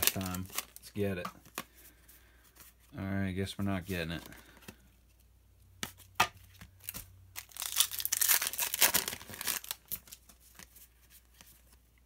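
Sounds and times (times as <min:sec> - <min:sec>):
foil wrapper crinkling and tearing: 0:00.0 - 0:01.1, 0:06.8 - 0:10.7.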